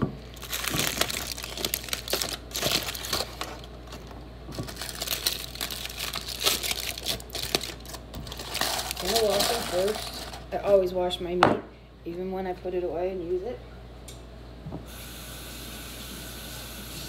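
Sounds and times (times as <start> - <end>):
foil crinkling: 0.2 - 10.5.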